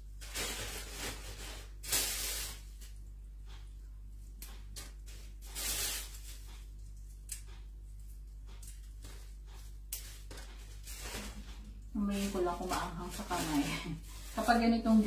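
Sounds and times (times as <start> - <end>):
steady low hum: 0.0 - 15.0
plastic bag rustling: 0.1 - 2.9, 10.0 - 15.0.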